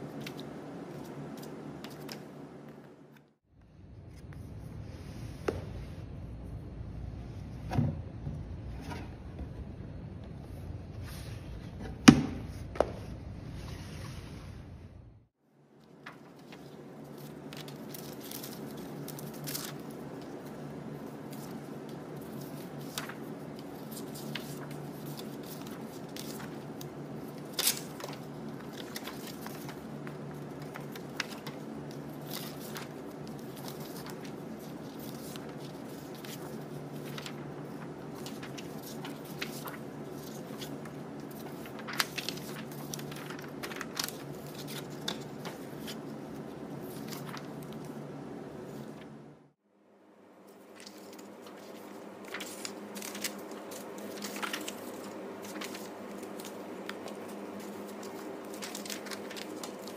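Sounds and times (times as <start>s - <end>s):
paper rustling: 0.0s - 3.4s, 15.8s - 49.2s, 50.4s - 59.9s
paper snap: 0.2s - 3.3s, 21.2s - 48.0s, 50.7s - 59.9s
low hum: 3.5s - 11.8s.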